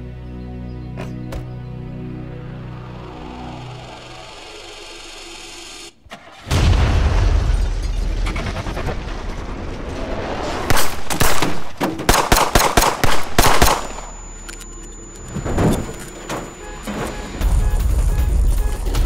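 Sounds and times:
heavy rifle shot: 0:10.6 - 0:14.2
rapid sharp gunshots: 0:10.6 - 0:14.2.

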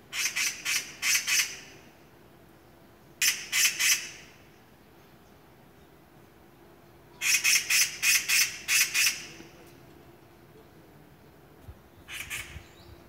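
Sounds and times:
bird giving harsh calls: 0:00.1 - 0:01.9, 0:03.2 - 0:04.4, 0:07.2 - 0:09.4, 0:12.0 - 0:12.9.

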